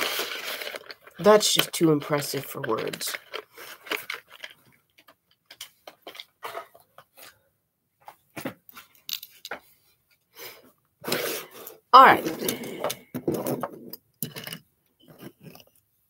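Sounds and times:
small objects clicking and rustling: 0:00.0 - 0:07.2, 0:08.7 - 0:09.7, 0:12.2 - 0:15.9.

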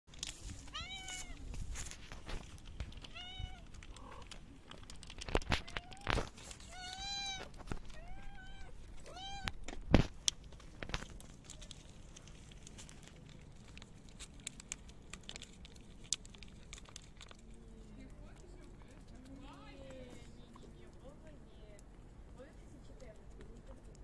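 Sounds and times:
cat meowing: 0:00.7 - 0:01.4, 0:03.0 - 0:04.2, 0:05.6 - 0:09.6.

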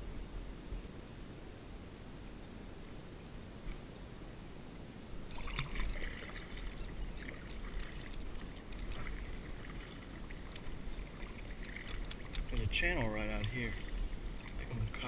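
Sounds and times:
low steady rumble: 0:00.0 - 0:15.0
paddle splashing in water: 0:05.3 - 0:15.0.

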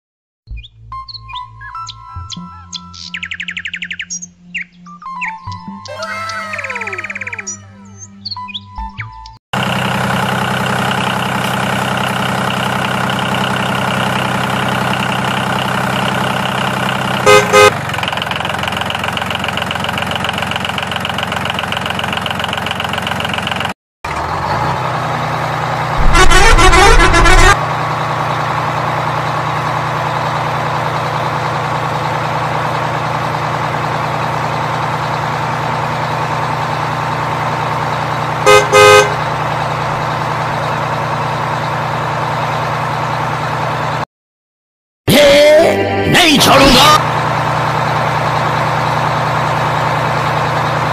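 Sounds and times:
truck engine running: 0:00.9 - 0:44.1, 0:45.2 - 0:50.9
truck horn honks: 0:17.0 - 0:18.0, 0:26.0 - 0:27.7, 0:38.4 - 0:39.8.

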